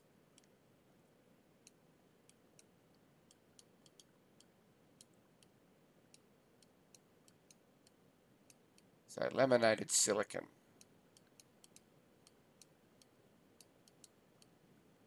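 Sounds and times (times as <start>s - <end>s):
stylus tapping on tablet screen: 1.6s - 8.9s, 10.8s - 14.6s.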